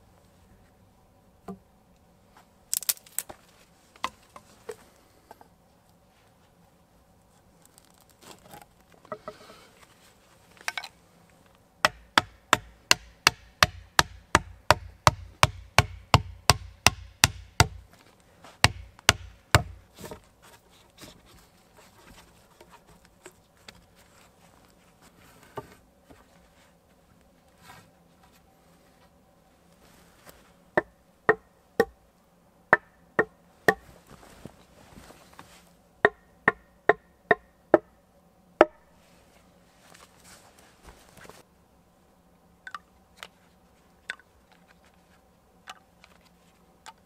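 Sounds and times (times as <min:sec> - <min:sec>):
tool striking wood: 0:11.8 - 0:17.8, 0:18.6 - 0:20.2, 0:30.8 - 0:32.0, 0:32.7 - 0:33.8, 0:36.0 - 0:37.9.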